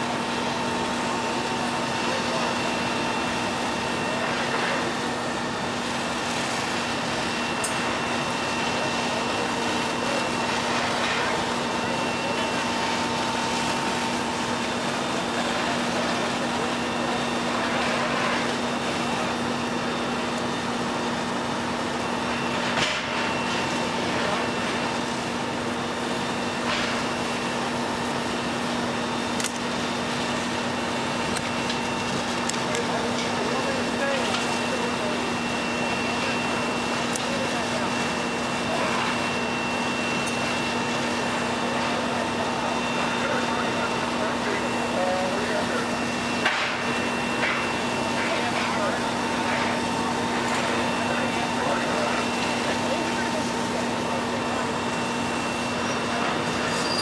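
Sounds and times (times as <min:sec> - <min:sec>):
high squeak: 0:56.7 - 0:57.0.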